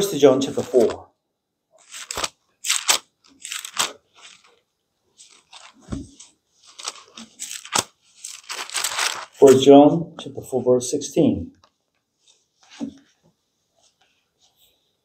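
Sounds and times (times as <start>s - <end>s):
book pages rustling: 0.5s - 1.0s, 1.8s - 9.6s.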